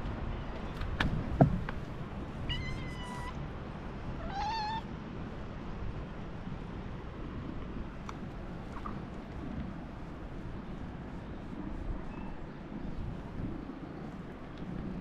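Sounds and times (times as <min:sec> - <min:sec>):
cat meowing: 0:02.4 - 0:03.4, 0:04.2 - 0:04.9.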